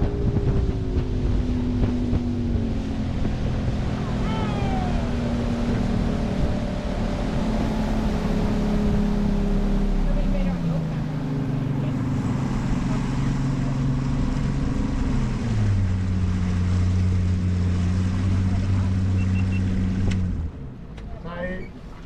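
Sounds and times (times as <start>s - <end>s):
outboard motor running: 0.0s - 21.0s
wind: 0.0s - 22.0s.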